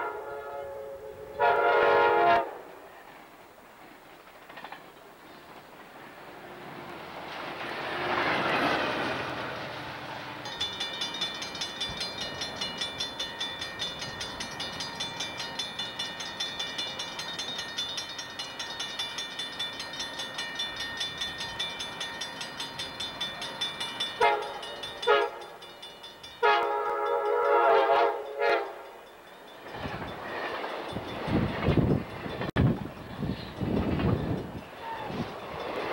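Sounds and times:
train air horn blasts: 0.0s - 2.8s, 24.2s - 25.6s, 26.4s - 28.9s.

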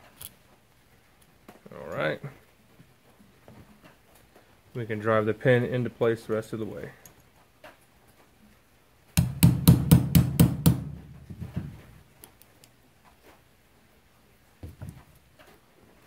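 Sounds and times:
hammer striking metal punch: 9.2s - 11.3s.

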